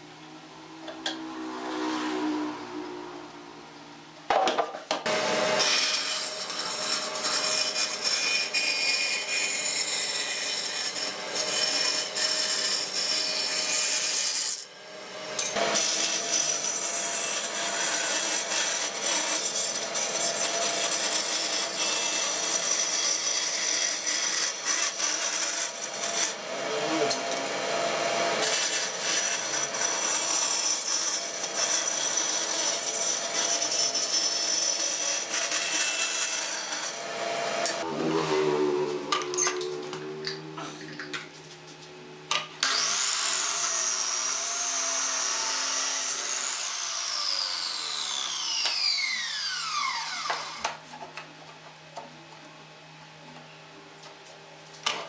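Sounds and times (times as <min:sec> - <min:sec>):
saw motor hum: 0:35.2 - 0:41.0, 0:42.6 - 0:45.7, 0:46.3 - 0:50.8
scroll saw rasping through wood: 0:42.6 - 0:50.7.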